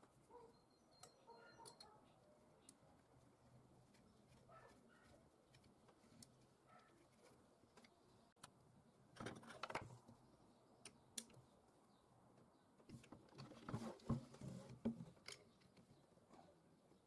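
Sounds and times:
faint metallic clicks and clinks: 0:00.9 - 0:02.8.

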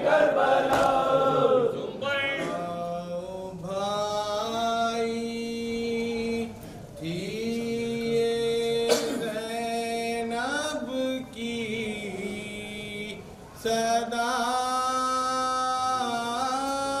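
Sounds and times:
sharp knock: 0:00.7 - 0:01.0
man chanting into microphone: 0:01.9 - 0:17.0.

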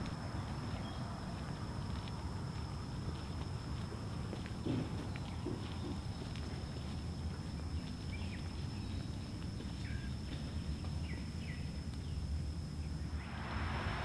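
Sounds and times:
low rumble: 0:13.1 - 0:14.0
thin high whine: 0:13.1 - 0:14.0.

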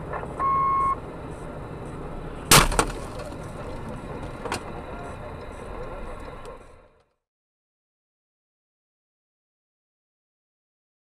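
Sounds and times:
road noise inside car: 0:00.0 - 0:07.2
short electronic beep: 0:00.4 - 0:01.0.

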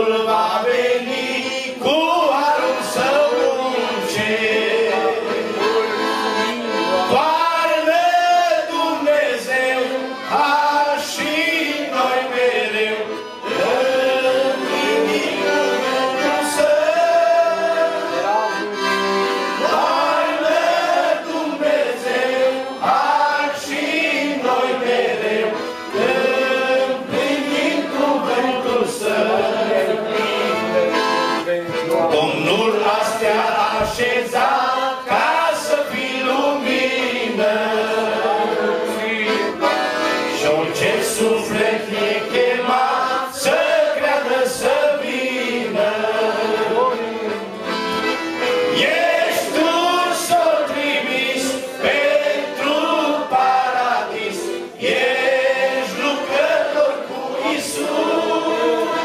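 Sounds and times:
man singing into a microphone: 0:00.0 - 0:19.0, 0:28.3 - 0:47.4
piano accordion: 0:00.0 - 0:59.0.

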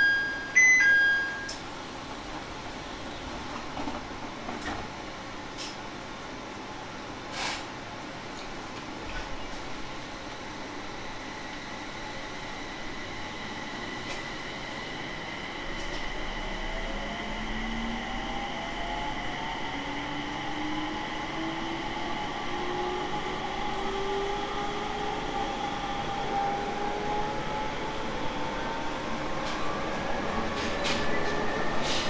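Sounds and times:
electric train motor whine: 0:11.9 - 0:27.7.

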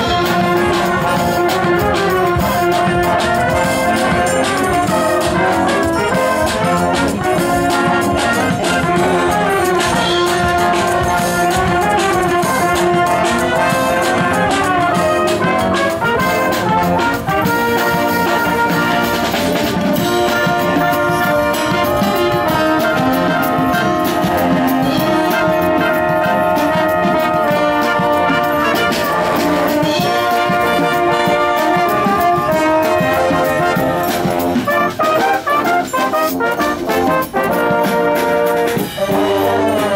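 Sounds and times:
military brass band playing: 0:00.0 - 0:39.9.

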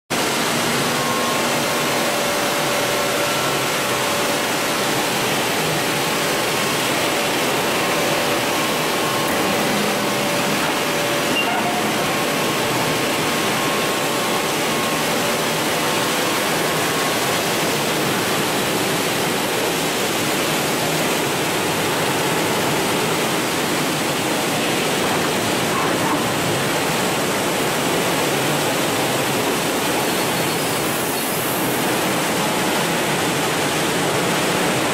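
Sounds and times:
polishing machine rushing noise: 0:00.6 - 0:19.7.

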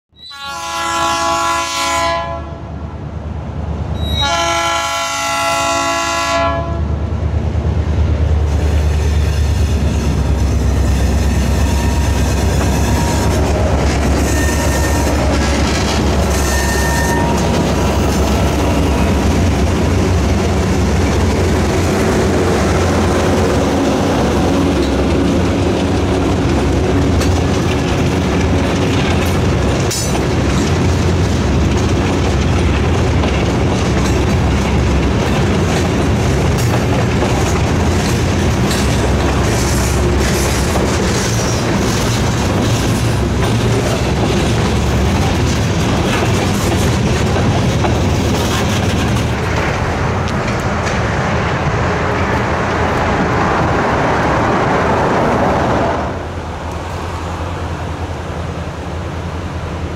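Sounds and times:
train horn blasts: 0:00.2 - 0:02.6, 0:04.0 - 0:06.9, 0:10.8 - 0:13.6, 0:14.2 - 0:17.6
diesel engines rumbling: 0:02.9 - 0:59.9
train wheels clattering over rail joints: 0:08.4 - 0:53.4.

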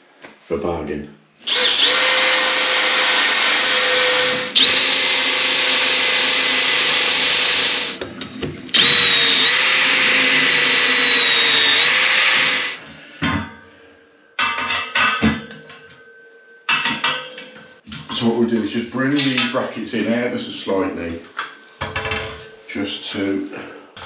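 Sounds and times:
drill boring into ceramic tile: 0:01.5 - 0:08.0, 0:08.7 - 0:12.8.

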